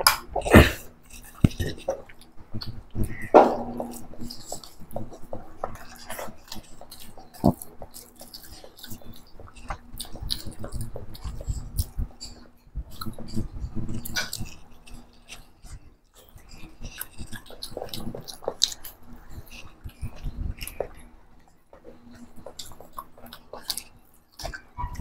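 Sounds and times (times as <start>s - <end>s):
fingers mixing food: 0.0s - 25.0s
wet chewing and lip smacks: 0.0s - 25.0s.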